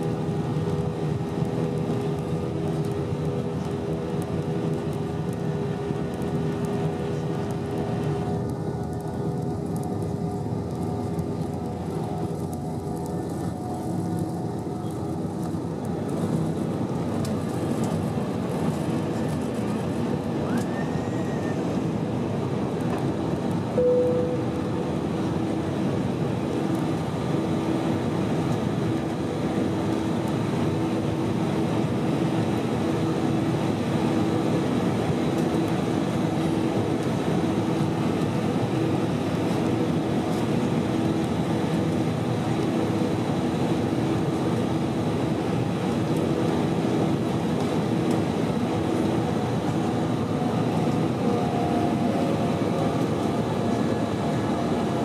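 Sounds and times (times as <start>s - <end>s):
jet engine and airflow rush: 0.0s - 55.0s
short tone: 23.8s - 24.6s.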